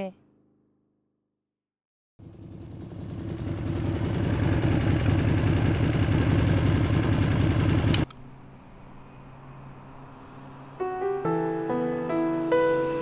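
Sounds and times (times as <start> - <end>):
motorcycle engine running: 2.2 - 8.1.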